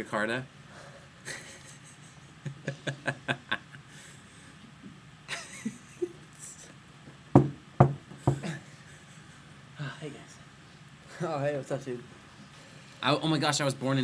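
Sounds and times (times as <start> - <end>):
young men laughing: 1.2 - 4.5, 5.3 - 6.6, 8.2 - 9.9.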